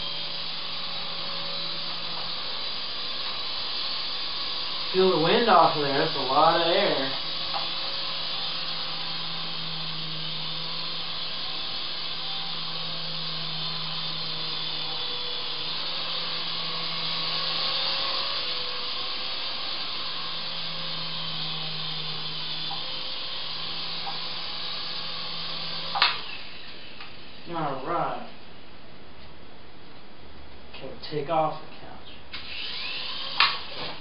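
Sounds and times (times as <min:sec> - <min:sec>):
toy helicopter motors whirring: 0:00.0 - 0:27.7, 0:32.3 - 0:34.0.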